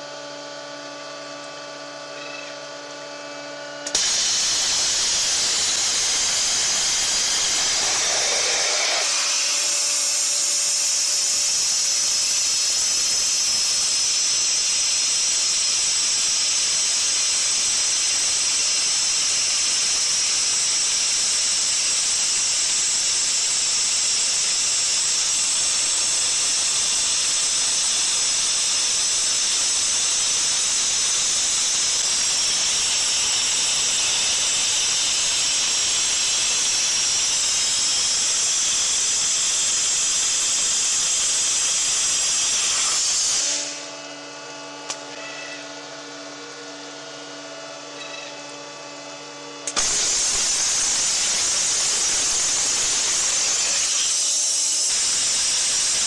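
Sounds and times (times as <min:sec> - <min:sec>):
waterjet hissing: 0:03.9 - 0:14.3, 0:15.0 - 0:43.9, 0:49.7 - 0:56.0.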